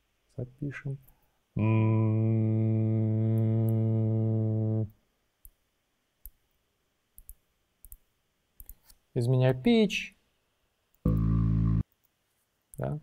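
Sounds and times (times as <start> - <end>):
man humming low note: 1.6 - 5.0, 11.1 - 11.8.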